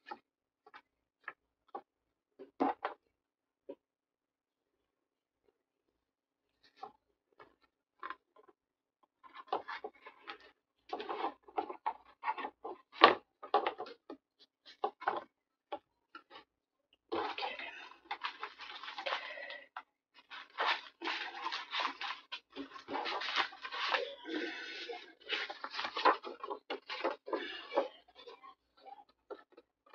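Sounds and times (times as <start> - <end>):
paper rustling and scraping: 17.2 - 19.6, 20.2 - 28.3.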